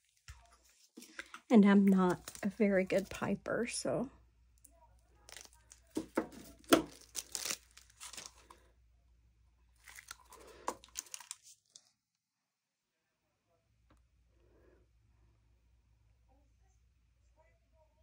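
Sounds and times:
plastic piping bag crinkling: 0.0 - 3.2, 5.1 - 8.6, 9.8 - 12.0.

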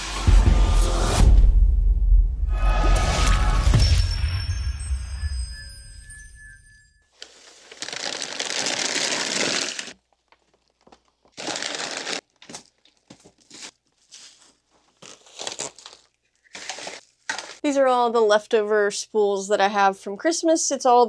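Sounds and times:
plastic bags crinkling: 7.1 - 17.6.

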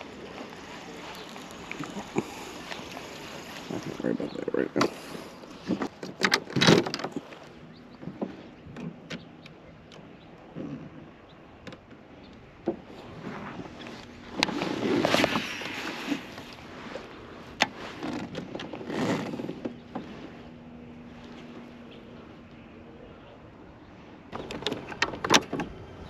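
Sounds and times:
swishing washes of noise: 0.0 - 6.0, 12.9 - 18.0
gear handling knocks and clicks: 5.5 - 7.4.

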